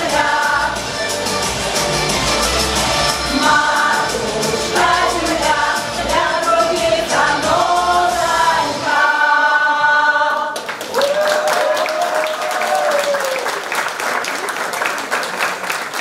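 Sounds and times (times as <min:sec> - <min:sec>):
women singing folk song in chorus: 0:00.0 - 0:00.9, 0:03.3 - 0:10.6
people clapping: 0:10.4 - 0:16.0.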